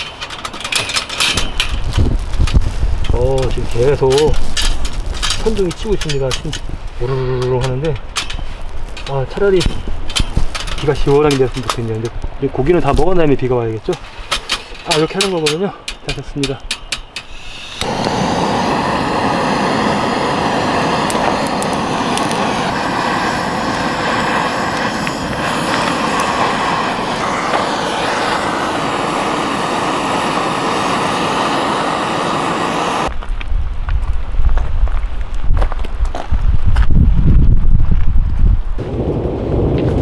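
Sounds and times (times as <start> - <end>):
gas torch roaring: 0.0 - 11.8, 16.1 - 33.1.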